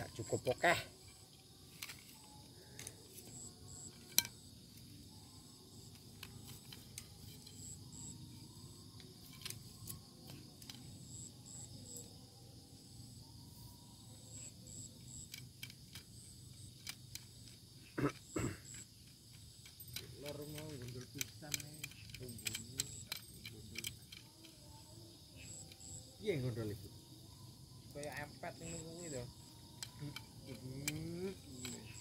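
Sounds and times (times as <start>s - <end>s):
crickets chirping: 0.0s - 32.0s
steady high insect hum: 0.0s - 32.0s
fishing pole clicks and taps: 1.8s - 4.4s.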